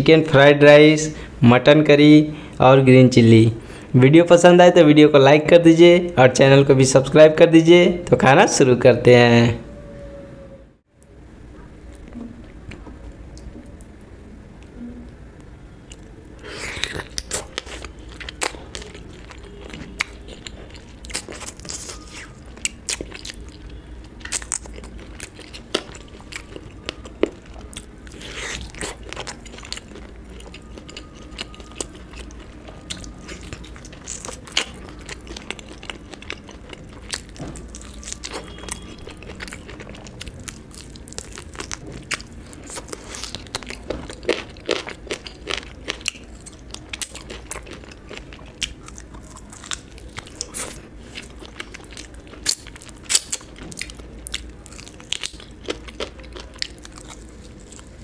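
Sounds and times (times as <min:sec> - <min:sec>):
person chewing and crunching: 0:15.8 - 0:58.0.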